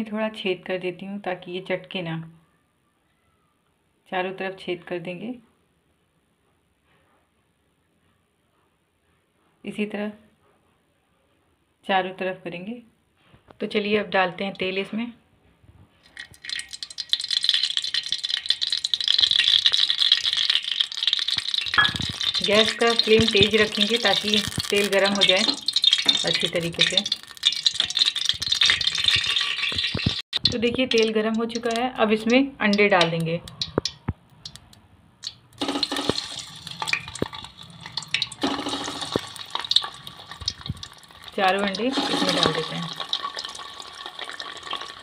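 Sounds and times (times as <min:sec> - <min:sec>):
oil crackling and sizzling in pot: 0:15.9 - 0:45.0.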